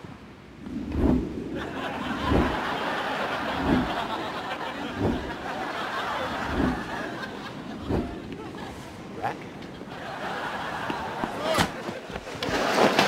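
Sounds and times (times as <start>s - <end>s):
audience laughter: 1.5s - 13.0s
dull thumps: 2.2s - 2.7s, 3.6s - 4.1s, 4.9s - 5.6s, 6.3s - 7.1s, 7.8s - 8.6s.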